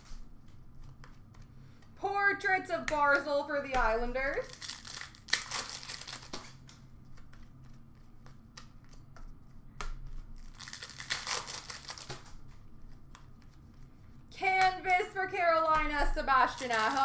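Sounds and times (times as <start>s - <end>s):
foil pack crinkling: 4.4s - 6.5s, 10.3s - 12.6s, 16.4s - 17.0s
cards flicked through by hand: 5.4s - 10.2s.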